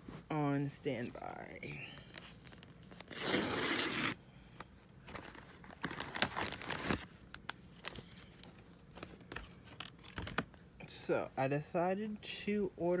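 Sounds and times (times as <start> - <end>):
plastic envelope tearing: 2.4 - 4.2, 5.1 - 8.0
packaging crinkling and rustling: 5.0 - 10.5.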